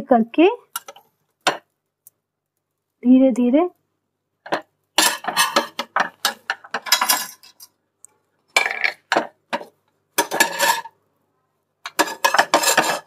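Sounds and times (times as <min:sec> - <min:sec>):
metal spatula scraping a frying pan: 0:05.0 - 0:07.7, 0:09.6 - 0:11.0, 0:11.9 - 0:13.0.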